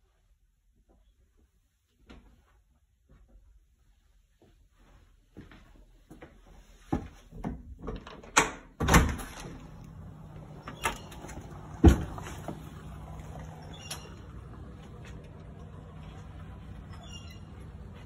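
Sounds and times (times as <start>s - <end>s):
outdoor background hum: 7.3s - 18.0s
glass door swinging open: 7.9s - 18.0s.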